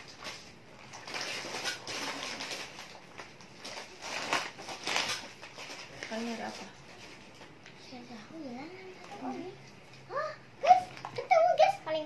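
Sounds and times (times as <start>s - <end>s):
plastic packets rustling and crinkling: 0.0s - 8.1s.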